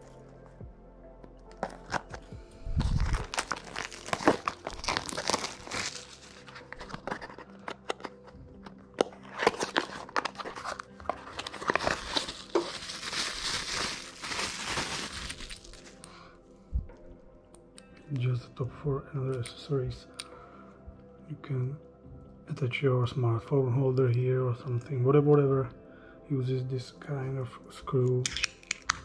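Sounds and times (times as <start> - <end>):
bubble-wrap bag crinkling: 1.6 - 8.2, 9.0 - 16.0.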